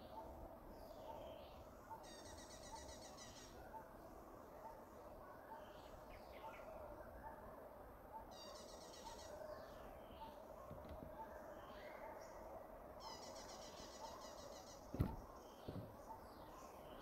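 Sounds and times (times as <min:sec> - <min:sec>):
birds chirping: 0:08.1 - 0:17.0.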